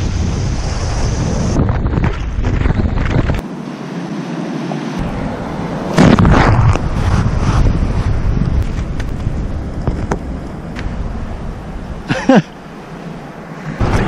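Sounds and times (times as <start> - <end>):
wind buffeting microphone: 0.0 - 3.4, 5.9 - 12.1.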